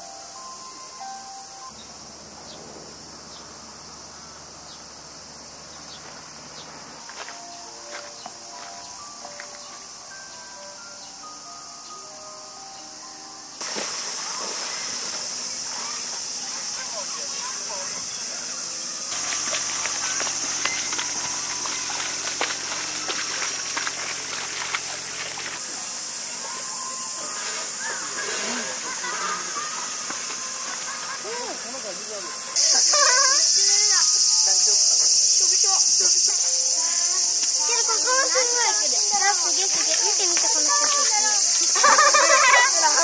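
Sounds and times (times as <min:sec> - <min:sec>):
insects droning: 0:00.0 - 0:43.0
hooves splashing in shallow water: 0:19.1 - 0:25.6.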